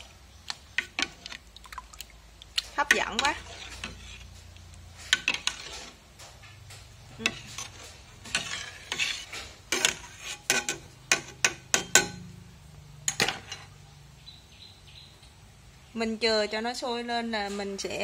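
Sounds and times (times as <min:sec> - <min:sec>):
metal ladle scraping pot: 0:00.7 - 0:01.4, 0:02.6 - 0:13.8.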